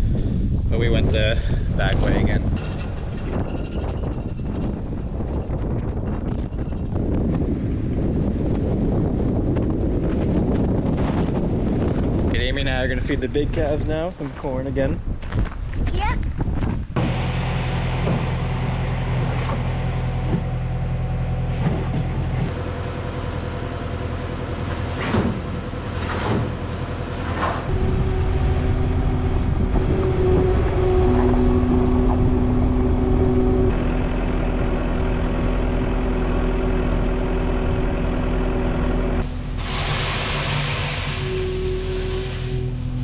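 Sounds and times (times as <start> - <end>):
diesel engine running: 2.1 - 10.7, 17.0 - 43.0
steady whine: 26.7 - 43.0.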